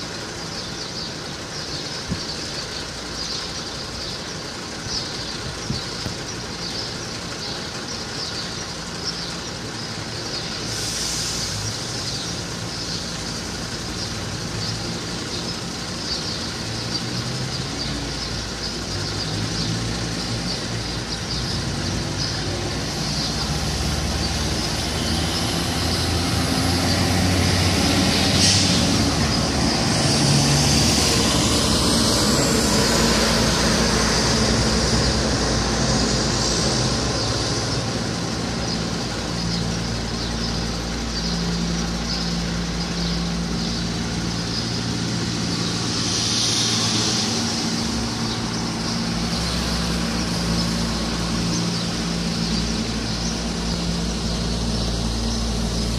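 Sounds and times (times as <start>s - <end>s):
diesel engine idling: 0.0s - 55.9s
short hisses: 10.7s - 11.7s.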